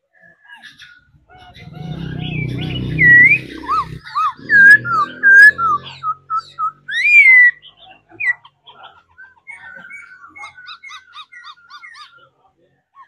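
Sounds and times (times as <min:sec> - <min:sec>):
bird singing whistled notes: 0:01.5 - 0:07.6.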